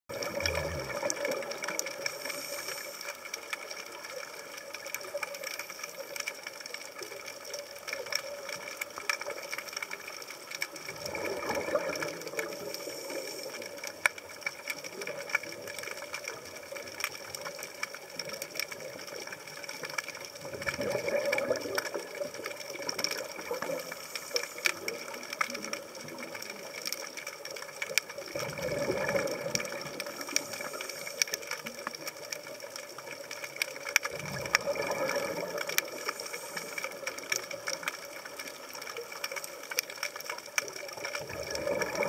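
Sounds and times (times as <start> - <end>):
regulator bubbles exhaled: 0.1 - 3.4, 10.8 - 14.0, 20.4 - 26.5, 28.2 - 31.5, 34.0 - 37.8, 41.0 - 42.0
faint steady hum: 0.1 - 42.0
underwater crackle of clicks: 0.1 - 42.0.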